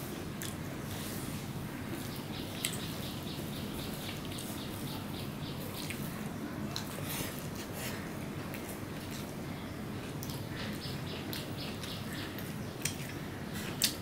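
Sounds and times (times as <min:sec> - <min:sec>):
chewing: 0:10.0 - 0:14.0.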